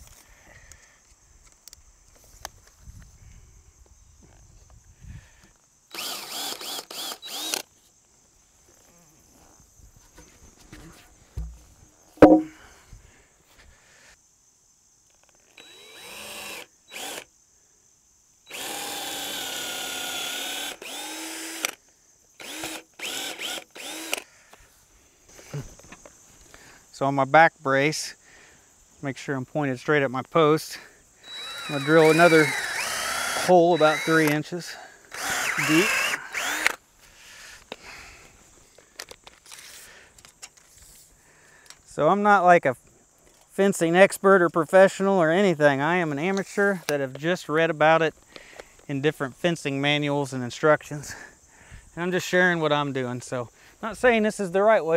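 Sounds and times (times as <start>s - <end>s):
cordless drill boring wood: 5.9s - 7.7s, 15.6s - 17.3s, 18.5s - 21.8s, 22.4s - 24.3s, 31.2s - 34.4s, 35.1s - 36.8s.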